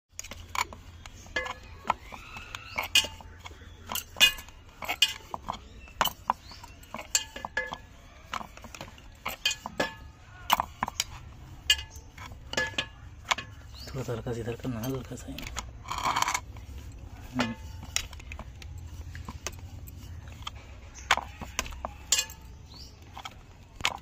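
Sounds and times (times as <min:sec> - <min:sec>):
glass bangles clinking: 0:00.5 - 0:24.0.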